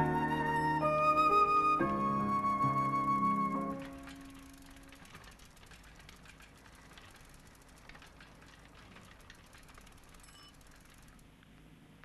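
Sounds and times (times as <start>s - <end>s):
faint crackle of clicks: 3.6s - 12.0s.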